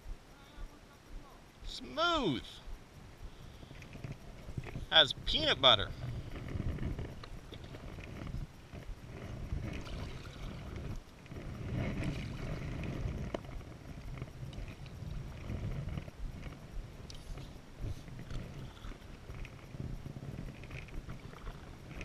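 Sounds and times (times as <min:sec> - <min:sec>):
wind rumble on microphone: 0:00.0 - 0:22.0
water splashing around boat: 0:03.7 - 0:16.6, 0:18.2 - 0:22.0.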